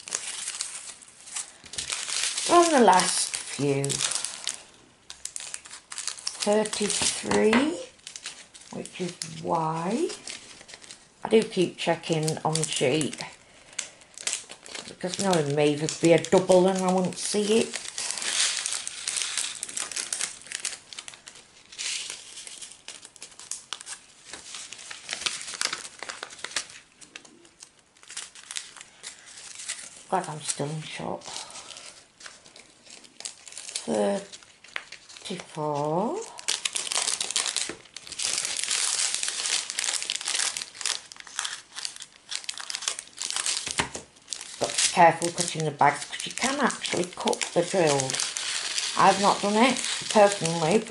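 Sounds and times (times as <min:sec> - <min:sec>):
scissors cutting foil: 0:00.0 - 0:04.6, 0:35.2 - 0:50.9
foil packets crinkling: 0:00.0 - 0:50.9.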